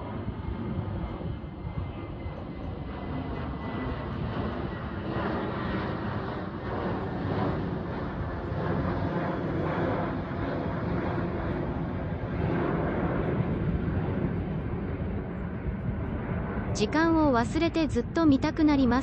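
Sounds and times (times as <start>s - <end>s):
jet engines climbing overhead: 0.0s - 19.0s.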